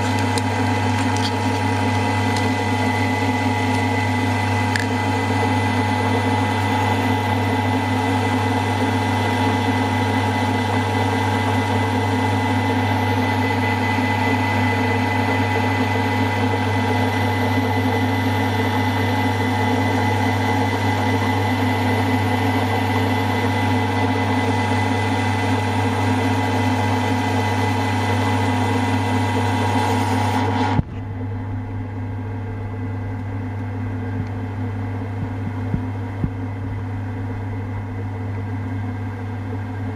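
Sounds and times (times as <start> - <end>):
milling machine humming: 0.0 - 39.9.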